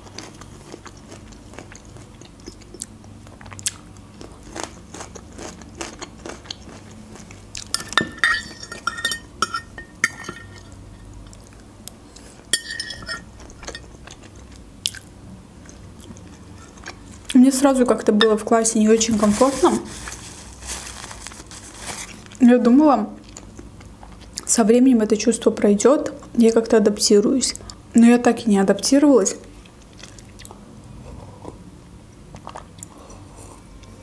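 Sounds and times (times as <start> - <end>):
close-up chewing: 0.0 - 7.7
fork scraping on ceramic plate: 12.6 - 13.3.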